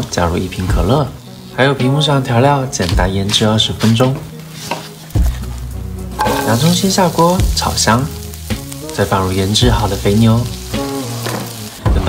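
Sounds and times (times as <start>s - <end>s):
meat and onions sizzling in a pan: 4.3s - 12.0s
person narrating: 6.2s - 8.1s, 8.9s - 10.6s.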